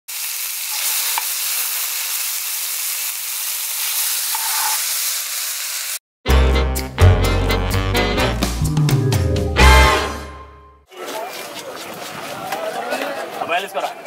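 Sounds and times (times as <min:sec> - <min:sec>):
fish sizzling in oil: 0:00.1 - 0:06.0
music: 0:06.2 - 0:10.8.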